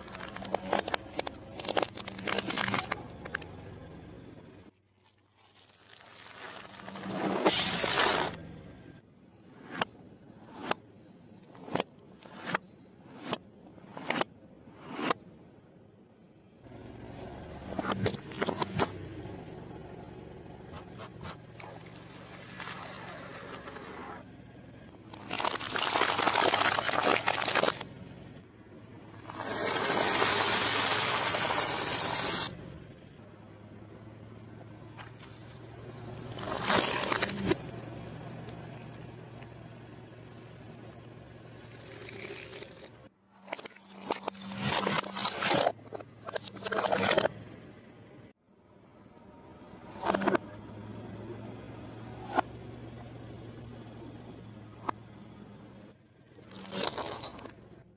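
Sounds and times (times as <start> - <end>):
car running hum: 16.6 - 43.3, 45.7 - 57.9.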